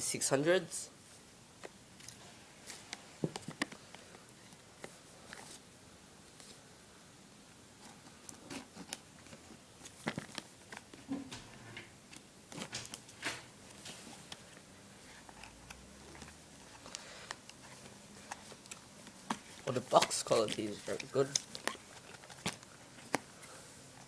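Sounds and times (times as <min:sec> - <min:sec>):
packaging clicks and scrapes: 0:12.1 - 0:24.0.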